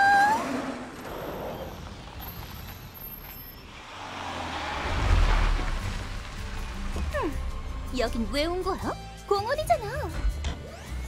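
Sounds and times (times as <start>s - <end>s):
vehicle driving past: 3.7s - 7.9s.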